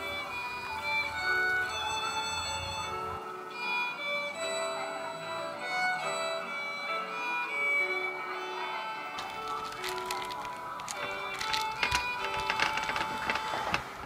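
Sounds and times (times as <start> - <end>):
violin melody: 0.0 - 14.0.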